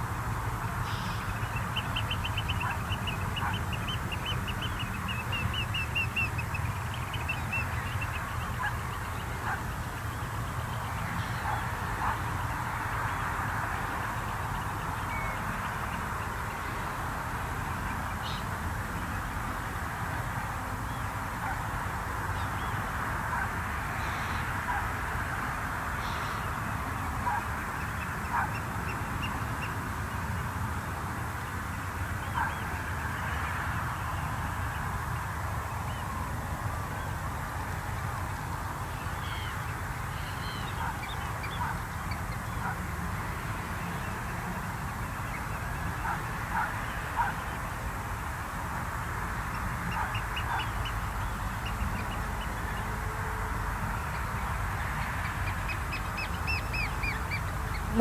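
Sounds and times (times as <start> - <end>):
shorebirds calling: 0.7 - 13.4, 54.1 - 58.0.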